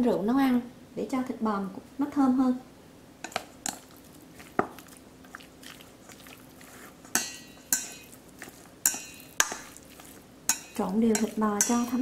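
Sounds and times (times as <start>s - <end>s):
chopsticks clinking on steel bowl: 6.1s - 12.0s.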